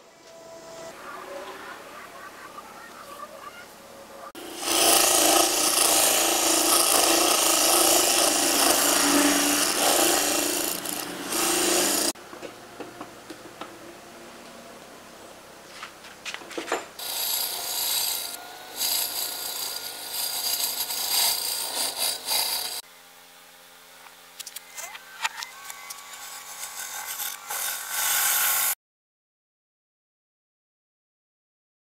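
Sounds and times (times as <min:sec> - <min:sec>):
wood lathe cutting hiss: 0:04.4 - 0:12.2, 0:17.0 - 0:22.8, 0:26.0 - 0:28.8.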